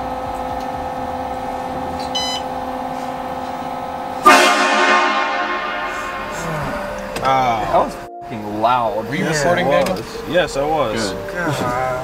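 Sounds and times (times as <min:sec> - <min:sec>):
steady mechanical hum: 0:00.0 - 0:12.0
short high beep: 0:02.1 - 0:02.5
loud multi-tone horn blast: 0:04.2 - 0:08.2.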